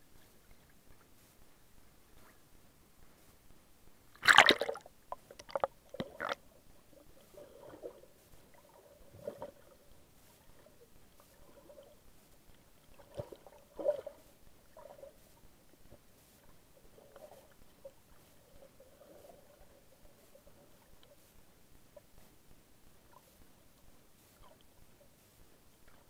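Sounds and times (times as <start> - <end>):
water splashing over camera: 4.2 - 10.7
underwater gurgles and bubbling: 4.2 - 12.0, 12.8 - 15.2, 16.8 - 21.1.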